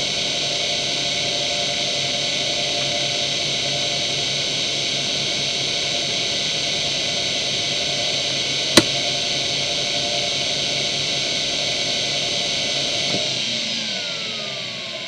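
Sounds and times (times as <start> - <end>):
hard drive click: 8.8 - 9.0.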